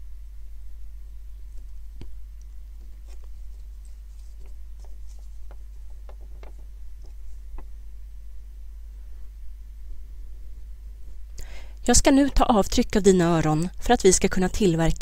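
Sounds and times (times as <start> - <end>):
low hum: 0.0 - 13.9
faint clicks and taps: 1.5 - 7.8.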